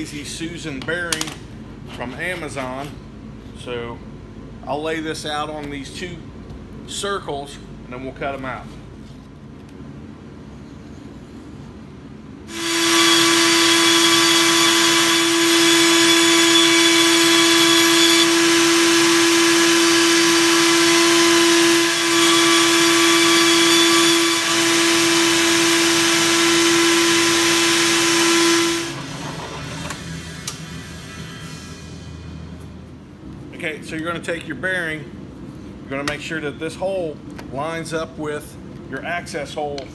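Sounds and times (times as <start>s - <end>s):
band saw motor hum: 12.5s - 30.6s.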